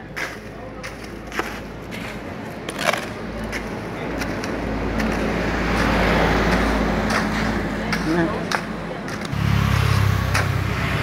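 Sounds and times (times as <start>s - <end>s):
motor vehicle passing: 2.8s - 11.0s.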